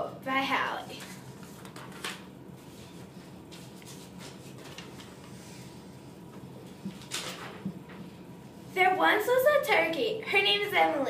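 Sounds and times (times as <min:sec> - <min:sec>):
steady low hum: 0:00.0 - 0:11.0
paper rustling: 0:00.9 - 0:05.8, 0:06.7 - 0:08.0.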